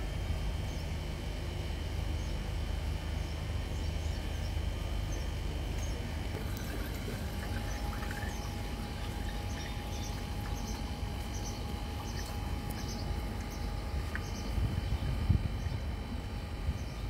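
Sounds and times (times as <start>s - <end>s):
low steady rumble: 0.0s - 17.0s
water pouring from a plastic bottle: 6.2s - 14.2s.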